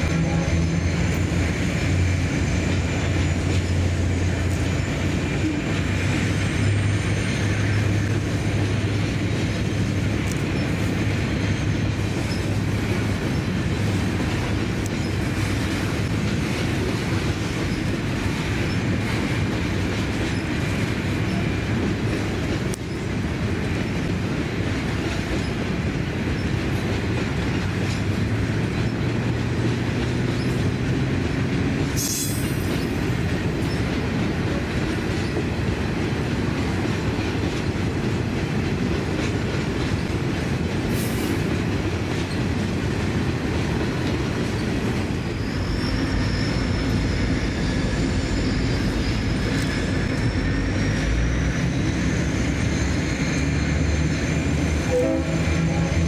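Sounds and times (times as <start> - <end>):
train wheels rumbling on rail: 0.0 - 56.0
wheels clicking over rail joints: 7.5 - 45.9
thin wavering wheel squeal: 45.2 - 56.0.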